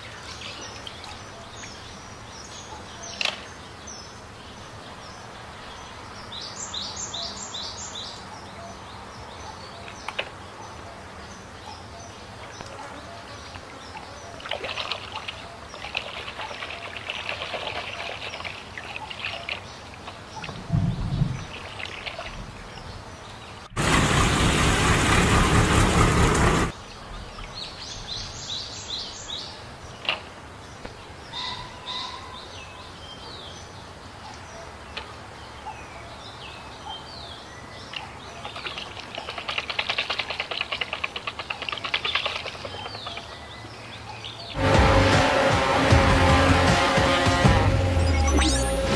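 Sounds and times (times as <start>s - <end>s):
water sloshing in a plastic tub: 0.0s - 1.8s, 13.4s - 22.9s, 37.9s - 43.7s
birds chirping: 0.0s - 45.8s, 47.8s - 48.9s
loud steady rushing noise: 23.7s - 26.8s, 44.6s - 48.9s.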